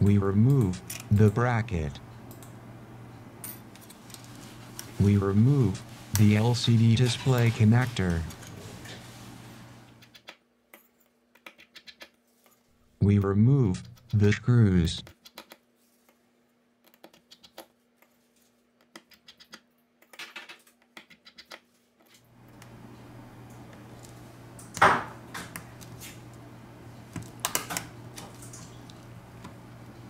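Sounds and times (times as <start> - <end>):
steady low hum: 0.0 - 10.0, 12.8 - 15.1, 22.2 - 30.0.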